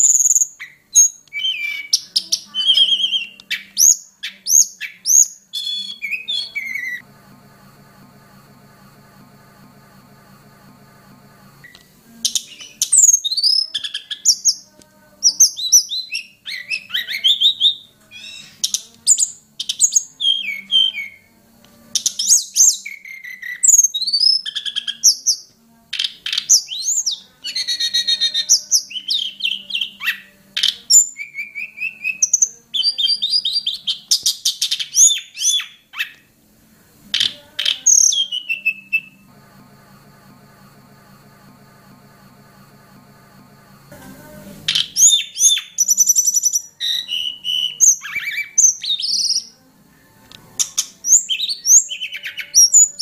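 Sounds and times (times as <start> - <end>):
bird singing whistles and chirps: 0.0 - 7.0, 11.7 - 21.3, 22.0 - 36.3, 37.2 - 39.2, 44.7 - 49.5, 50.6 - 53.0.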